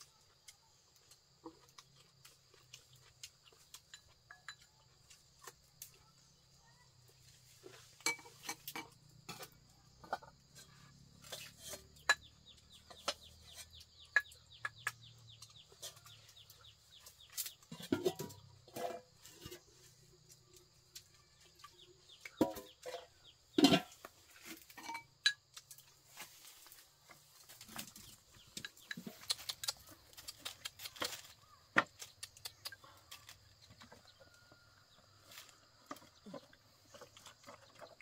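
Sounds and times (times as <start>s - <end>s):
birds chirping: 10.0s - 19.8s, 27.5s - 34.7s.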